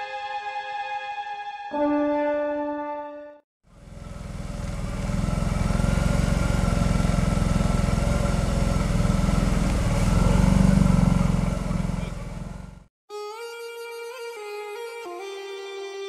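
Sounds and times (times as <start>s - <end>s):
quad engine running under load: 3.7s - 12.9s
quad ploughing through water: 3.7s - 12.9s.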